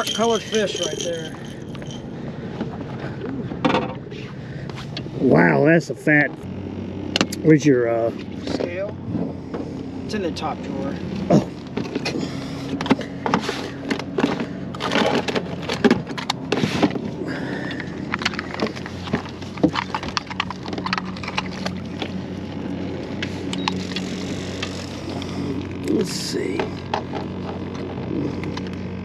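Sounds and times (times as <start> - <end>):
knocks and clatter of gear: 0.0 - 4.1, 11.1 - 29.0
steady low hum: 0.0 - 29.0.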